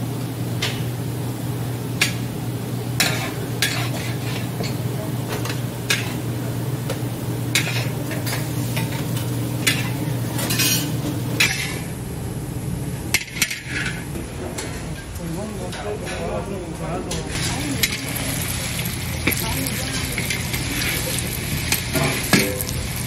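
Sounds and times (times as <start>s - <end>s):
metal spatula scraping a wok: 3.1s - 4.5s
egg frying: 17.4s - 23.0s.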